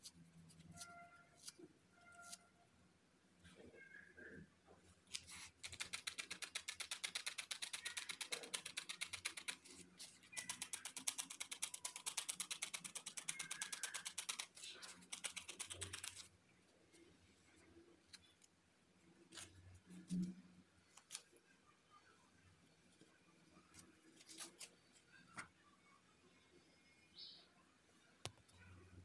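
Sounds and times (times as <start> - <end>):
felting needle poking wool: 5.1 - 16.3.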